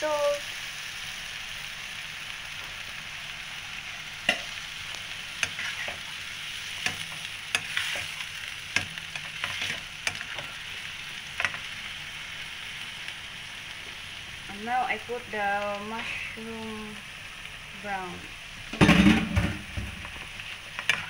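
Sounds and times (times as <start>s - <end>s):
vegetables sizzling in a wok: 0.0s - 21.0s
spatula scraping a pan: 5.4s - 10.6s, 20.0s - 21.0s.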